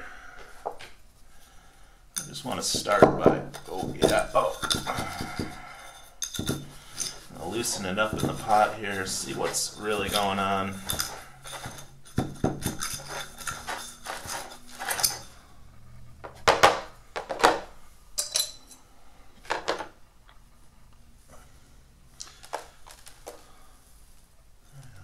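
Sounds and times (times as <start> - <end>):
tweezers scraping potting mix: 2.2 - 15.4
knocks and scrapes on pot: 2.3 - 15.3.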